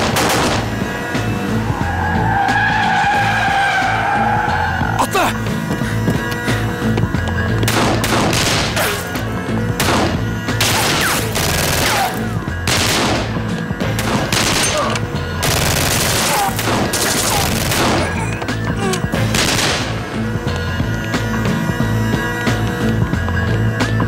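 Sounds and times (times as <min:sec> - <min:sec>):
pistol gunfire: 0:00.0 - 0:00.7, 0:07.7 - 0:09.0, 0:09.8 - 0:18.2, 0:19.3 - 0:20.0.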